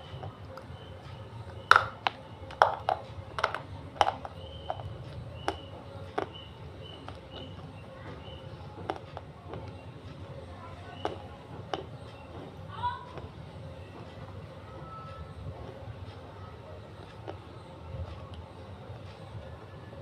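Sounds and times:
chewing crunches: 1.7s - 9.7s.

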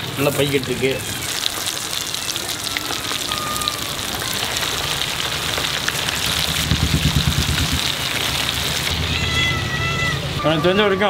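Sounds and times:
crackling sizzle of deep-frying: 0.0s - 9.9s
low thumps: 6.0s - 8.9s.

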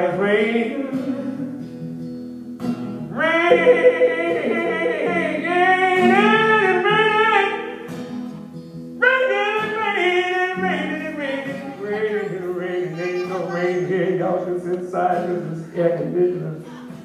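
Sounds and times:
acoustic guitar: 0.0s - 17.0s
man singing: 3.2s - 7.1s, 9.1s - 17.0s.

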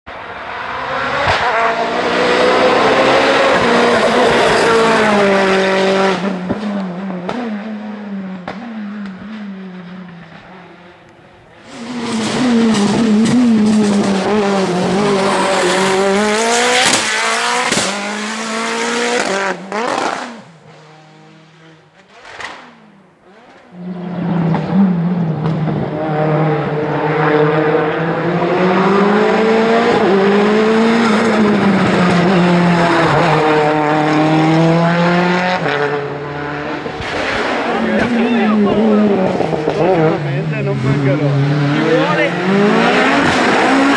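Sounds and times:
race car engine revving: 0.1s - 43.9s
engine backfire cracks: 22.1s - 22.8s.

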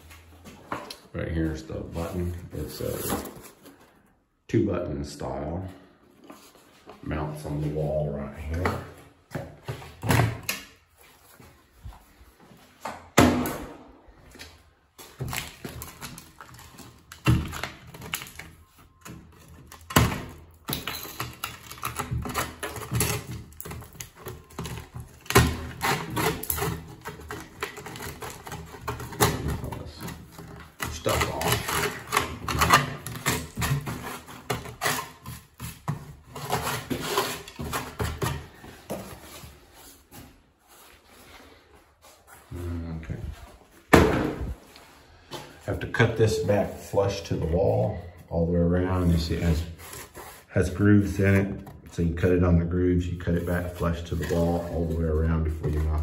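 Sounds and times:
cardboard packaging rustling: 14.9s - 20.6s, 21.2s - 42.4s.

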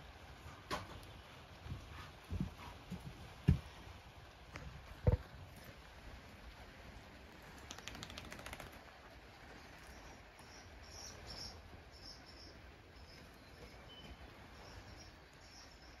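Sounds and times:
small clicks or rustles: 7.3s - 8.8s
faint birdsong chirps: 9.4s - 16.0s.

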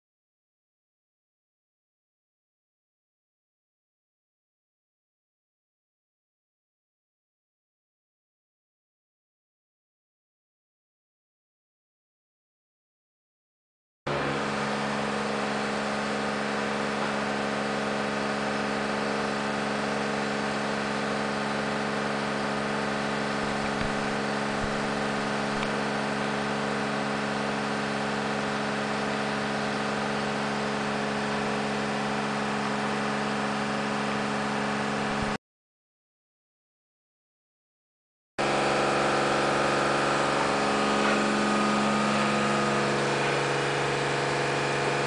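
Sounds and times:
low mechanical hum: 14.1s - 35.4s, 38.4s - 45.0s.

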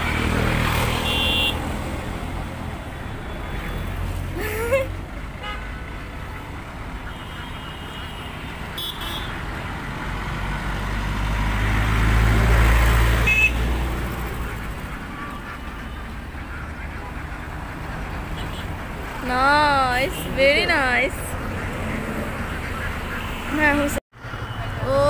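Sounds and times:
vehicle passing: 0.0s - 7.1s, 8.0s - 25.0s
road traffic rumble: 0.0s - 25.0s
car horn toots: 0.9s - 1.6s, 7.1s - 9.3s, 13.2s - 13.6s.

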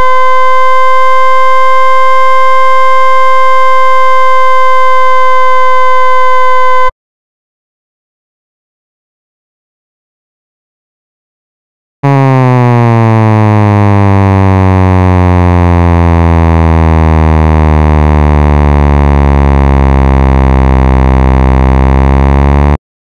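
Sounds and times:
synthesized buzzing tone: 0.0s - 6.9s, 12.0s - 22.8s.

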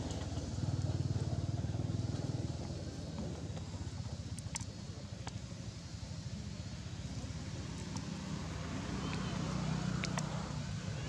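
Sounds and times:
low engine rumble: 0.0s - 11.0s
faint clicks: 10.0s - 10.4s.

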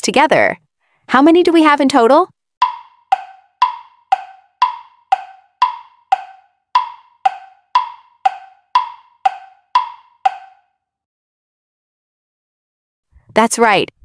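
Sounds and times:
wood-block clock ticks: 2.6s - 10.7s.

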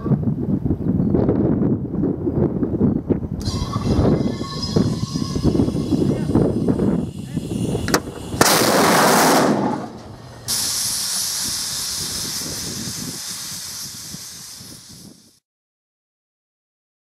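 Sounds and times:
rocket engine rushing burst: 3.4s - 15.4s
high steady hiss: 5.4s - 15.4s.

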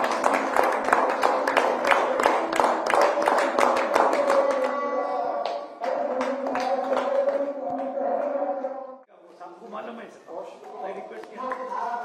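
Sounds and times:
small group clapping: 0.0s - 8.6s, 11.2s - 12.0s.

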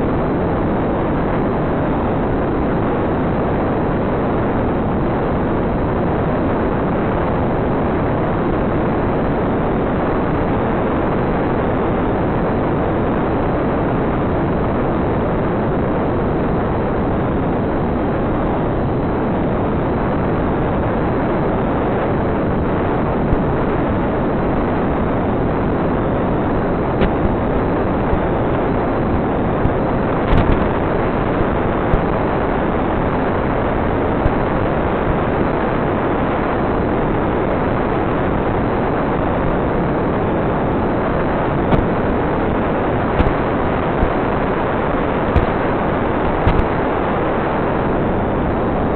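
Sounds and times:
static hiss: 0.0s - 48.9s
sharp clicks and crackles: 29.6s - 30.7s, 41.7s - 42.0s, 43.2s - 44.2s, 46.4s - 46.8s.

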